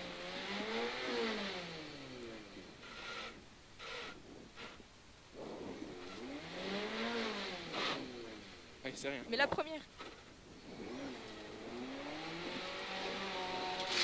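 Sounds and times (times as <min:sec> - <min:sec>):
car engine revving: 0:00.0 - 0:09.2, 0:09.9 - 0:14.0.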